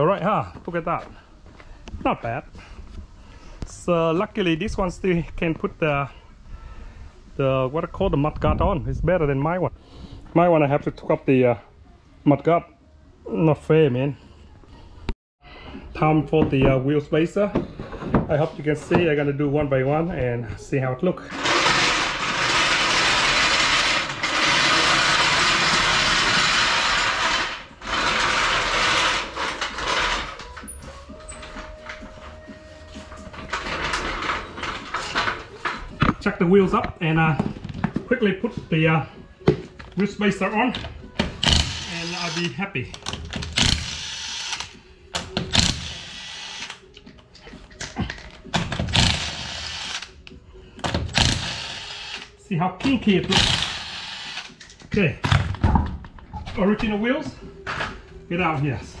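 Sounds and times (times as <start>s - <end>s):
jack wheels rattling on concrete: 21.2s - 31.6s, 33.2s - 36.3s
impact wrench spinning: 21.3s - 30.3s, 41.4s - 42.6s, 43.2s - 44.8s, 45.4s - 46.8s, 48.8s - 50.1s, 51.1s - 52.3s, 53.3s - 54.6s.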